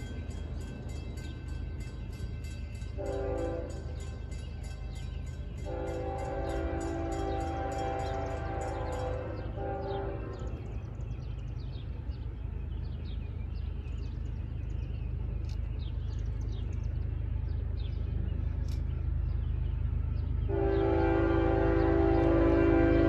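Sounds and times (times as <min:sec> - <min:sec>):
train rumbling: 0:00.0 - 0:23.0
locomotive air horn blast: 0:03.0 - 0:03.9, 0:05.7 - 0:10.5, 0:20.5 - 0:23.0.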